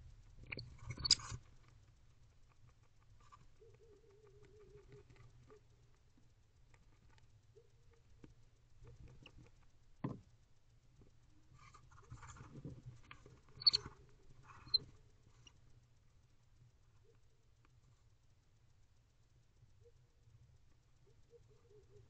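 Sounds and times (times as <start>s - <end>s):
faint low hum: 0.0s - 22.0s
scratching and feather rustling: 11.5s - 15.6s.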